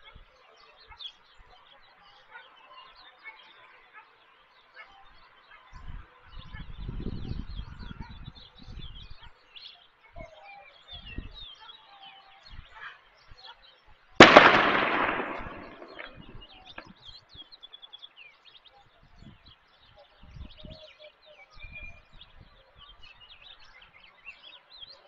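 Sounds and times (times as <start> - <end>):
small birds chirping: 0.0 - 25.0
loud ringing bang: 14.2 - 16.3.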